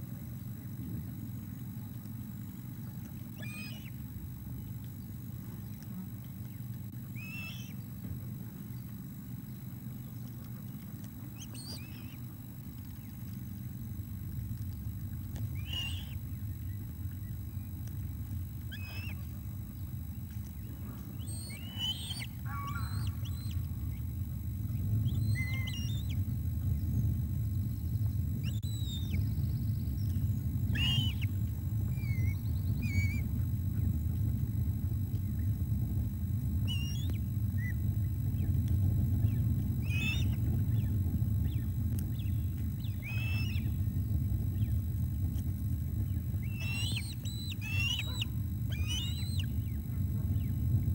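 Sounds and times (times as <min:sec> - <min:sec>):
low rumble: 0:10.1 - 0:50.9
bird chirping calls: 0:18.7 - 0:19.3, 0:21.2 - 0:23.7, 0:30.7 - 0:31.4, 0:42.2 - 0:43.7, 0:46.4 - 0:49.6
falling bird whistles: 0:30.7 - 0:31.3, 0:46.4 - 0:49.5.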